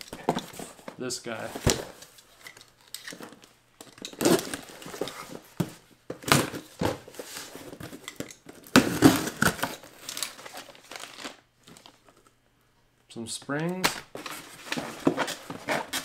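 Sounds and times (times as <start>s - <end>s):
packaging crinkling and tearing: 8.0s - 12.2s.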